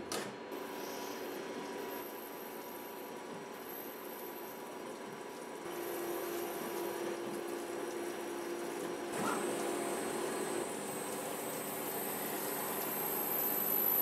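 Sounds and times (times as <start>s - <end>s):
lathe machine tone: 8.7s - 14.0s
faint high whine: 10.1s - 14.0s.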